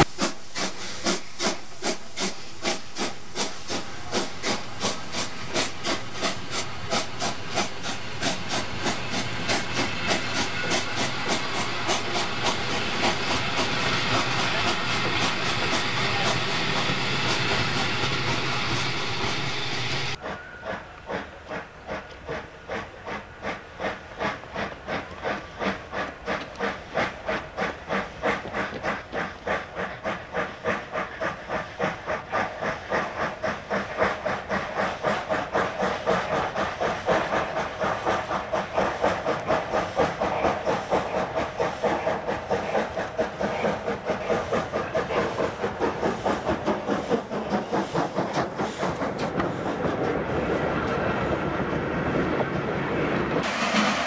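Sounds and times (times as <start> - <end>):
steam hissing: 0.0 - 50.6, 53.3 - 54.0
steam locomotive exhaust chuffs: 0.0 - 54.0.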